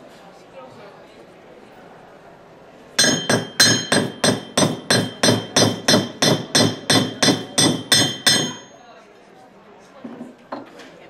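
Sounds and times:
hammer striking metal anvil: 0:03.0 - 0:08.8.

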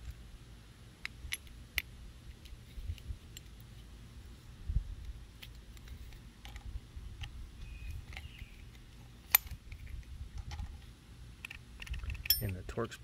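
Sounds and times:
metallic clicks of tools: 0:08.0 - 0:10.7, 0:11.4 - 0:12.7
sharp metallic clink: 0:12.2 - 0:12.6.

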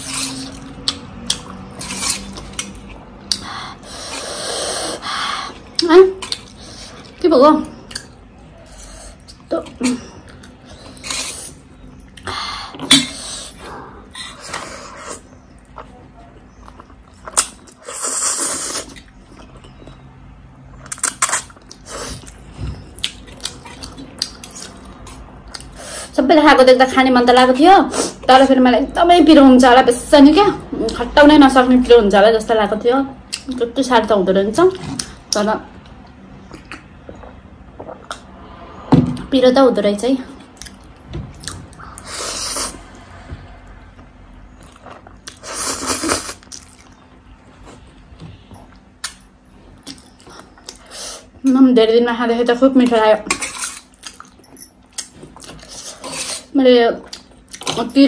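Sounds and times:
person chewing: 0:00.0 - 0:07.2, 0:10.2 - 0:25.8, 0:36.4 - 0:38.4, 0:40.4 - 0:43.1, 0:44.0 - 0:48.0, 0:48.6 - 0:51.0, 0:53.3 - 0:57.8
wet noodle slurps: 0:01.8 - 0:02.6
soft chewing: 0:43.8 - 0:51.4, 0:53.3 - 0:57.8.

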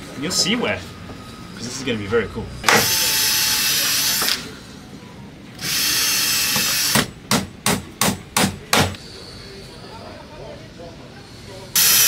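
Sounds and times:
cordless drill drilling into wood: 0:05.6 - 0:07.0, 0:11.8 - 0:12.0.

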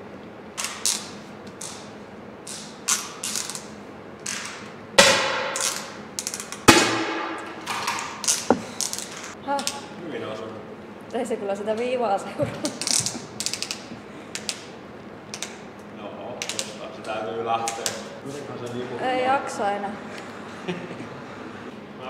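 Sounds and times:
sharp crack: 0:04.3 - 0:09.4
air rifle clicks and creaks: 0:07.6 - 0:09.4, 0:12.8 - 0:14.7.

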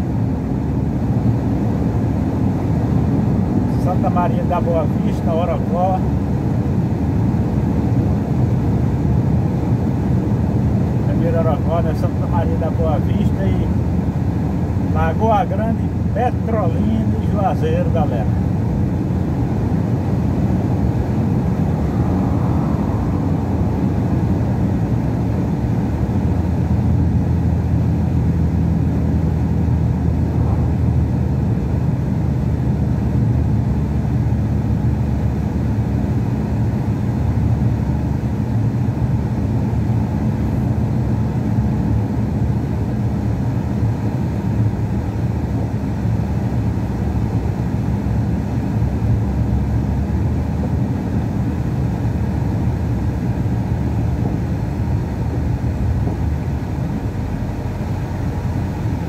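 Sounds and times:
truck engine cruising: 0:17.8 - 0:35.2.

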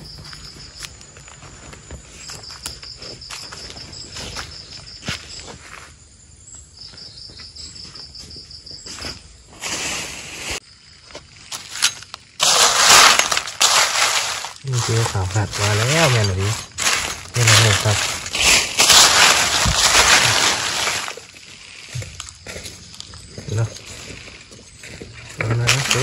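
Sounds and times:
footsteps: 0:10.5 - 0:26.0
insect trilling: 0:10.7 - 0:26.0
rustling: 0:11.4 - 0:24.6, 0:25.2 - 0:26.0.

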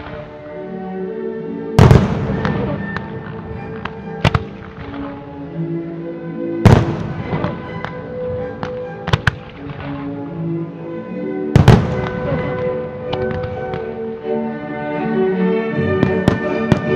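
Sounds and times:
music with long held notes: 0:00.0 - 0:16.9
firework bangs: 0:01.8 - 0:05.2, 0:06.6 - 0:10.1, 0:11.6 - 0:13.9
firework crackling: 0:08.6 - 0:10.2.

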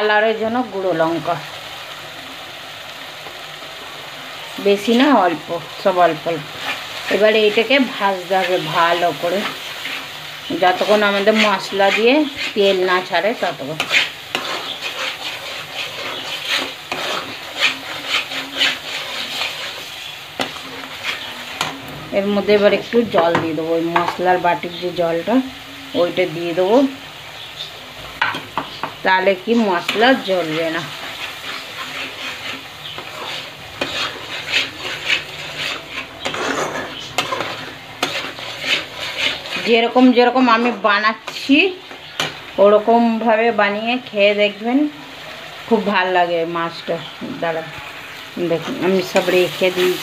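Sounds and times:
paste sizzling in oil: 0:00.0 - 0:50.0
metal spatula scraping paste: 0:06.5 - 0:12.8, 0:13.6 - 0:21.8, 0:29.8 - 0:39.9.

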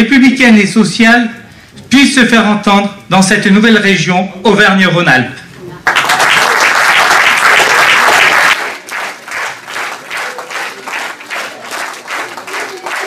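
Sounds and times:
audience applauding: 0:05.8 - 0:13.0
rhythmic clapping in unison: 0:05.8 - 0:13.0.

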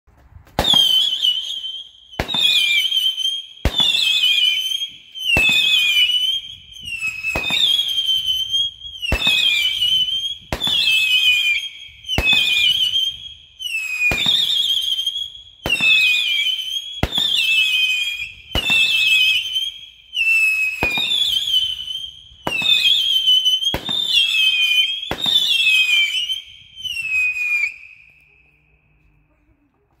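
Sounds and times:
firework launch pops: 0:00.2 - 0:01.4, 0:02.2 - 0:02.7, 0:03.6 - 0:04.0, 0:10.4 - 0:11.0, 0:18.5 - 0:18.9, 0:23.7 - 0:24.1, 0:25.1 - 0:25.5
shrill falling firework whistle: 0:00.5 - 0:28.9.

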